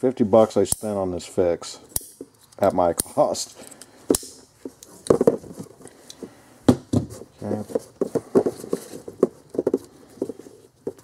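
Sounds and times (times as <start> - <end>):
knocks taps and rustles of handling: 3.7 - 11.0.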